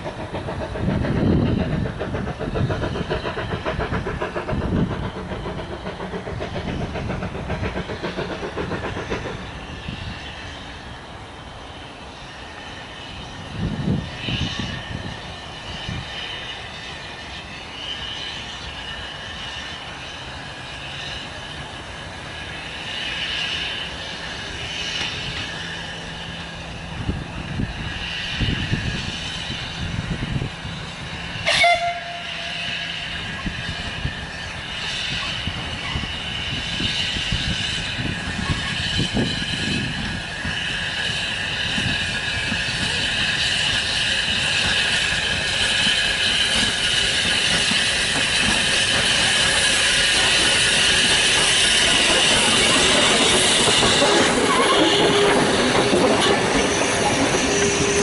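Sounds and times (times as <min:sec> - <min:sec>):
steam locomotive running: 0:00.0 - 0:58.0
steam whistle blast: 0:31.4 - 0:33.6.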